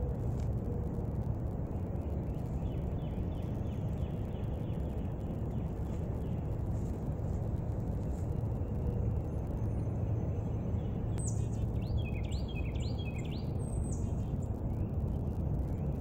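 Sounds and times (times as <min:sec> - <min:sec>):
low outdoor rumble: 0:00.0 - 0:16.0
bird chirping: 0:08.1 - 0:16.0.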